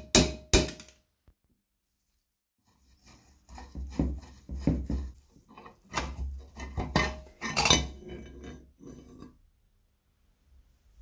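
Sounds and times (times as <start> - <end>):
metal knocks and scraping: 2.8 - 9.4.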